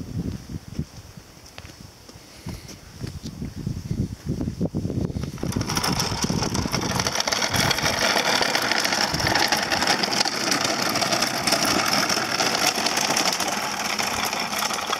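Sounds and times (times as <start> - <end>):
wooden cart wheels rattling on gravel: 5.2 - 14.9.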